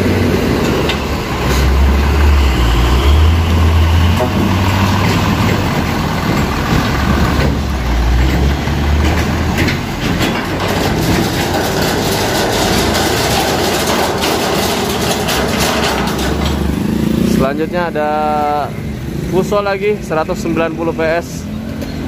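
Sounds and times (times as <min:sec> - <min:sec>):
diesel truck engine rumble: 0:00.0 - 0:22.0
road and tyre noise: 0:00.0 - 0:22.0
sharp knocks: 0:03.6 - 0:17.0.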